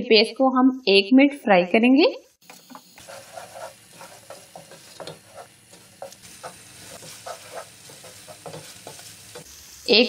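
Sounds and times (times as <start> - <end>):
paste sizzling in oil: 2.4 - 10.0
wooden spatula scraping pot: 2.6 - 9.5.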